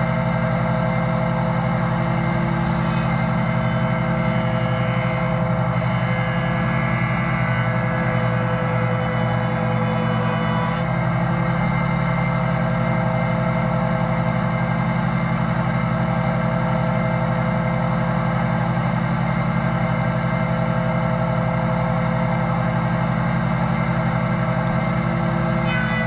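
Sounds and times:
shaper motor hum: 0:00.0 - 0:16.3, 0:22.8 - 0:26.0.

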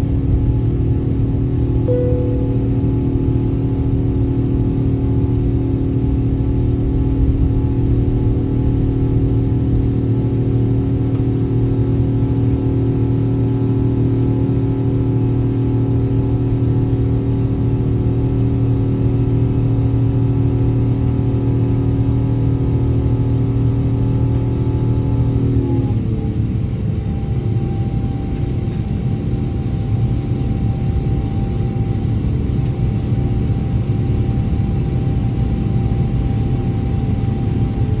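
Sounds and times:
jet engines droning: 0:00.1 - 0:19.2.

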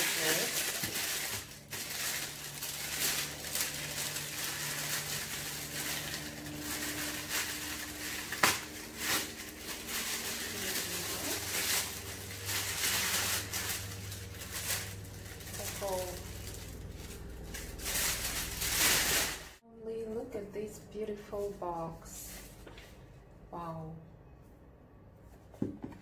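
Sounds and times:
tissue paper crinkling: 0:00.0 - 0:19.6.

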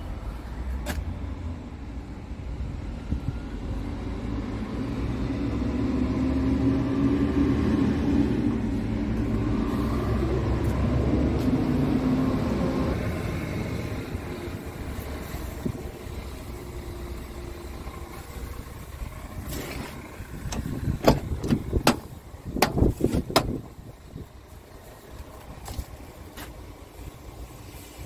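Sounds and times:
diesel engine idling: 0:00.0 - 0:28.0.

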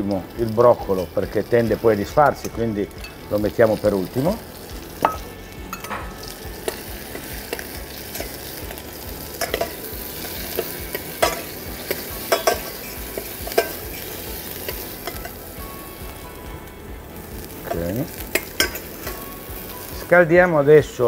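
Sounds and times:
vegetables sizzling in butter: 0:00.0 - 0:21.0
spoon clinking against pan: 0:05.0 - 0:08.4, 0:09.4 - 0:09.9, 0:10.5 - 0:14.0, 0:14.6 - 0:15.4, 0:17.7 - 0:19.2.

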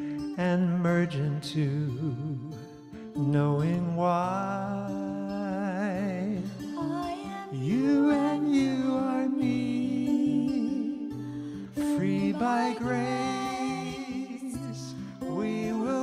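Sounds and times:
acoustic guitar: 0:00.0 - 0:16.0
woman singing with vibrato: 0:06.8 - 0:16.0.

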